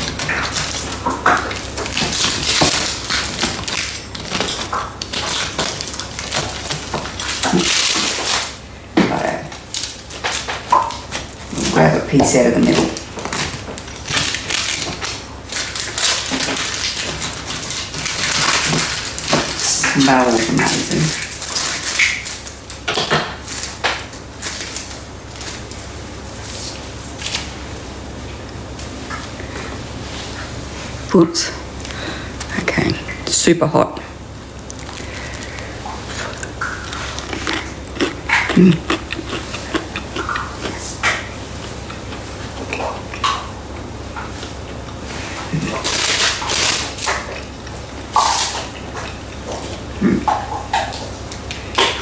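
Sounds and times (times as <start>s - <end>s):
pizza cutter crunching crust: 34.6s - 43.2s.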